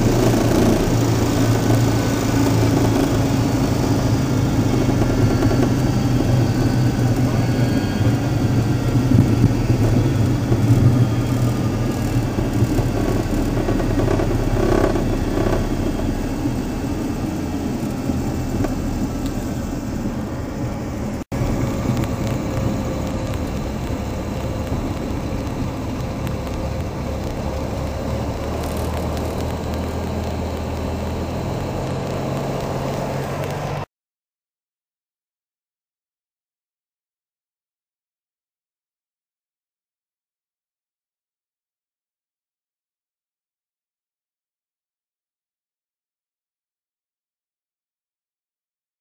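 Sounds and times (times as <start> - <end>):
propeller plane engine running: 0.0 - 33.9
rushing rumble of landing rollout: 0.0 - 33.9.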